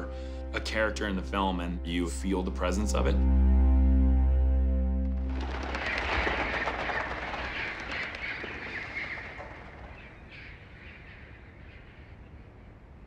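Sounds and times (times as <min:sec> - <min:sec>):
rapid chatter of clicks and chirps: 0:05.4 - 0:11.4.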